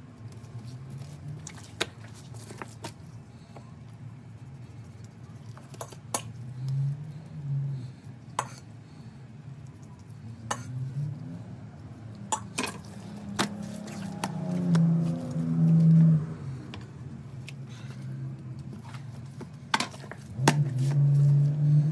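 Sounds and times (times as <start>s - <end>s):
low hum: 6.3s - 21.9s.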